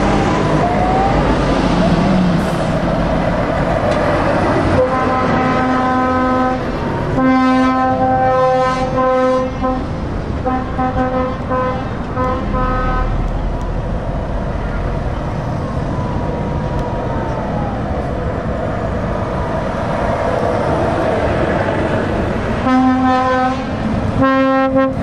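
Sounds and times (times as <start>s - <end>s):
passing lorries: 0.0s - 25.0s
truck air horn blasts: 4.7s - 13.2s, 22.6s - 25.0s.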